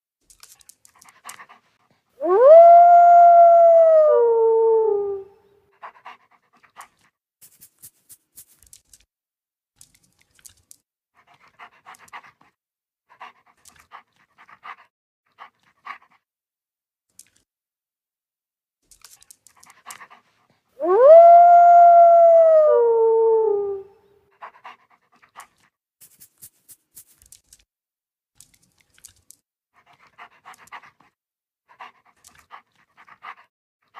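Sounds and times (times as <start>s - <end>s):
wolf howling: 2.2s - 5.4s, 20.8s - 24.1s.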